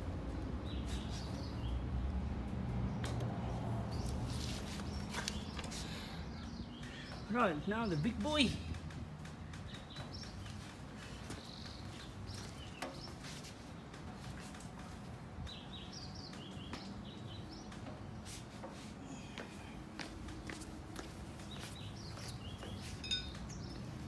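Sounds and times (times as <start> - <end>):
small birds chirping: 0.2 - 24.0.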